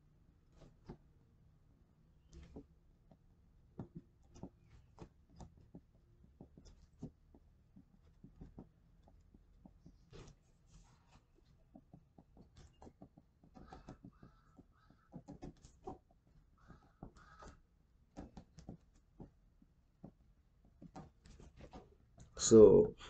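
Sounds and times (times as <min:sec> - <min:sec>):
pencil scratching on paper: 0:04.2 - 0:11.6, 0:12.2 - 0:17.6, 0:20.8 - 0:22.0.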